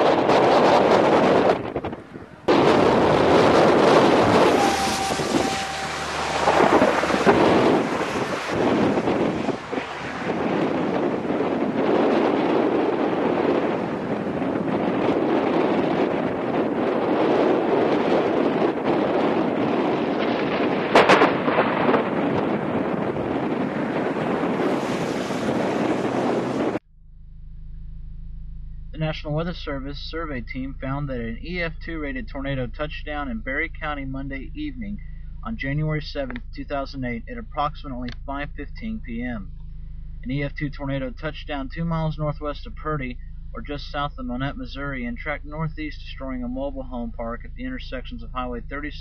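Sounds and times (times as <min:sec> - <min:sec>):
wind gusting across microphone: 0:00.0 - 0:26.8
faint low hum: 0:27.0 - 0:49.0.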